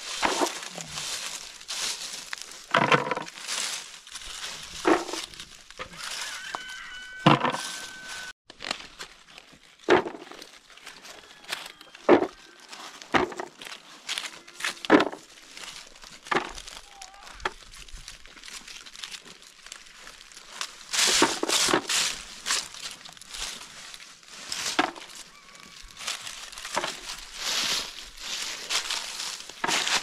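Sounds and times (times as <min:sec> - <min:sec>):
dry leaves crackling and rustling: 0:00.0 - 0:30.0
acorns knocking into plastic buckets: 0:02.7 - 0:03.3.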